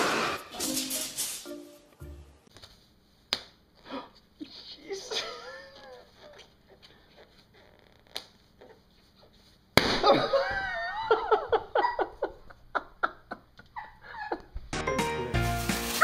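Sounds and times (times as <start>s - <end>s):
person laughing: 4.9s - 7.2s, 10.0s - 14.6s.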